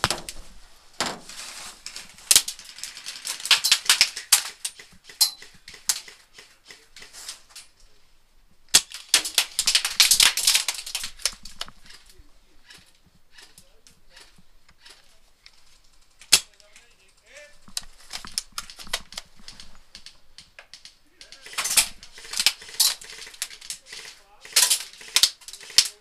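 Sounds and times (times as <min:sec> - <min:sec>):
airsoft gunfire: 0:02.2 - 0:07.2, 0:08.7 - 0:12.1, 0:16.0 - 0:16.7, 0:17.6 - 0:26.0.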